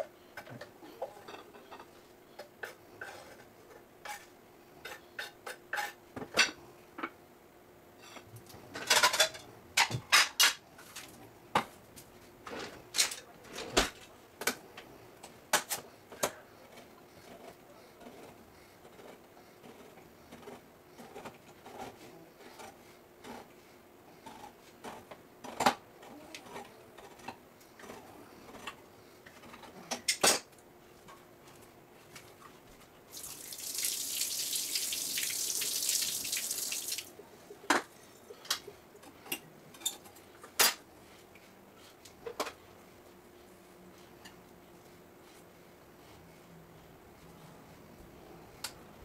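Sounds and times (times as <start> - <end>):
running water: 33.1 - 37.2.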